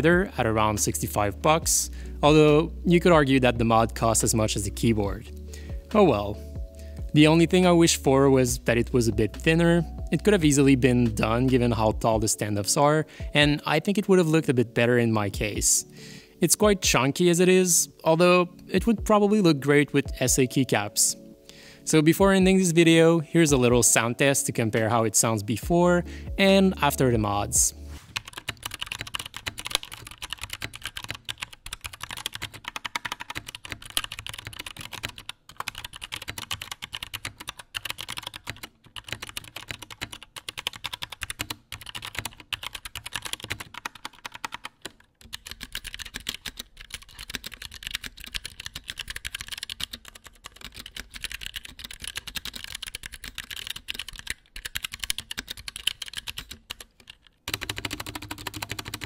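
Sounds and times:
fast typing on mechanical keyboard: 28.2 - 59.0.

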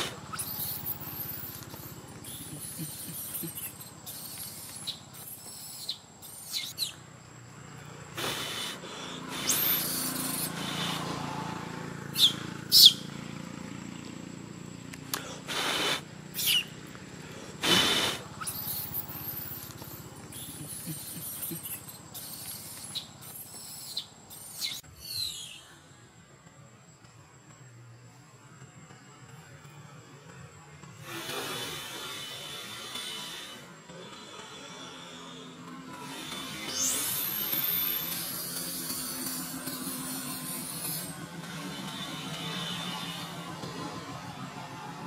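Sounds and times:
infant monkey squealing: 0.0 - 7.0, 8.2 - 11.2, 12.1 - 13.1, 15.5 - 16.8, 17.6 - 25.6, 36.0 - 43.4.

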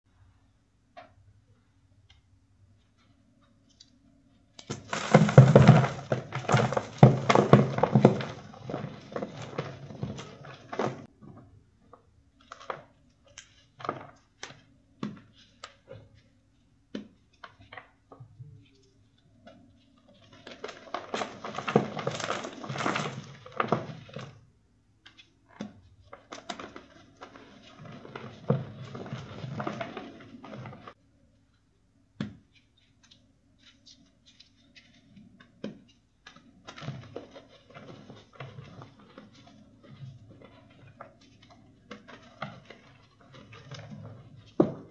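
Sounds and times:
charcoal crunching: 4.6 - 11.1, 20.2 - 24.4, 26.2 - 31.0.

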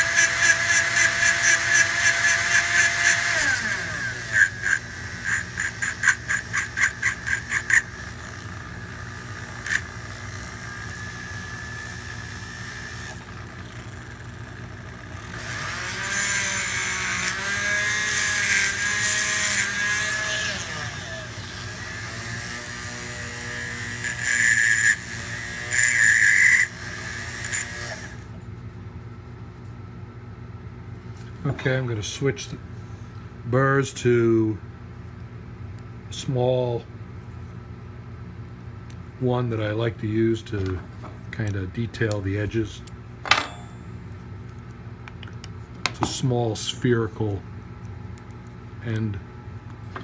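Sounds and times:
rotary tool grinding: 0.0 - 28.3.

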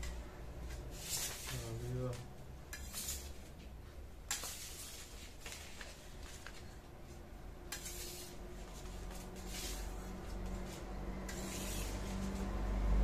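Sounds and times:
banknotes rustling: 0.6 - 2.3, 2.9 - 12.5.

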